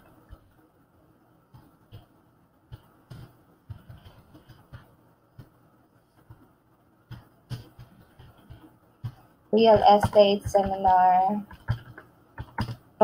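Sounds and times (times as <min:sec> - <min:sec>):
computer keyboard typing clicks: 0:07.1 - 0:12.9.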